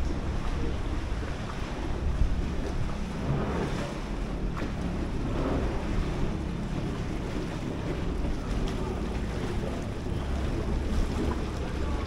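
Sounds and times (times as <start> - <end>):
boat engine rumble: 0.0 - 12.0
water noise: 0.0 - 12.0
wind buffeting microphone: 0.0 - 12.0.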